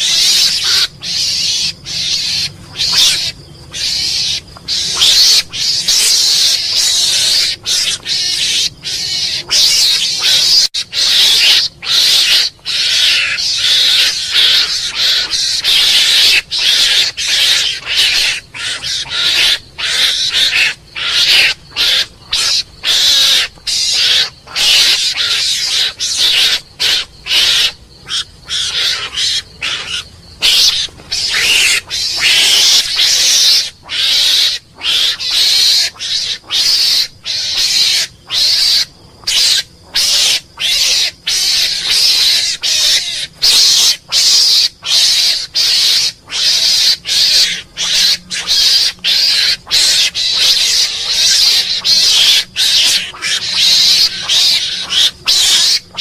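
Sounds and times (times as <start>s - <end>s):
mongoose squeaking: 0.0s - 56.0s.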